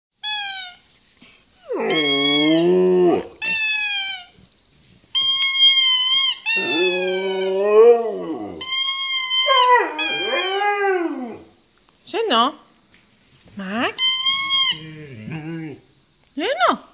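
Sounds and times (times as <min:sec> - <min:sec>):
squeaky toy squeals: 0:00.2 - 0:00.8, 0:01.9 - 0:02.6, 0:03.4 - 0:04.3, 0:05.2 - 0:07.4, 0:08.6 - 0:10.5, 0:14.0 - 0:14.8
dog howling: 0:01.6 - 0:04.3, 0:06.4 - 0:11.6.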